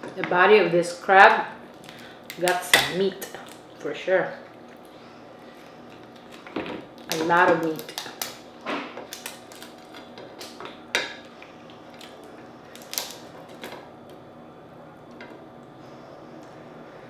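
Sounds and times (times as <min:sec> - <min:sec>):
low background hum: 0:00.0 - 0:17.0
crab shell cracking: 0:05.9 - 0:13.8.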